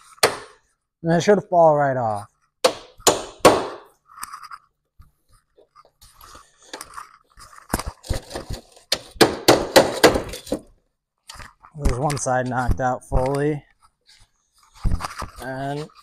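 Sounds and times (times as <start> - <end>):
sharp knocks on steel: 2.6 - 3.9.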